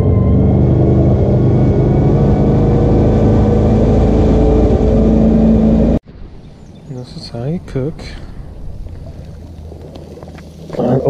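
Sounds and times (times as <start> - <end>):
boat engine running high revs: 0.0 - 6.0
water rushing: 0.0 - 11.0.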